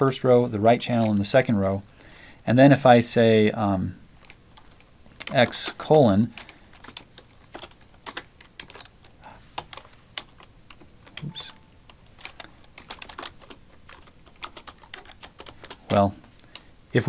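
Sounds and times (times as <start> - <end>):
computer keyboard typing: 4.2 - 16.7.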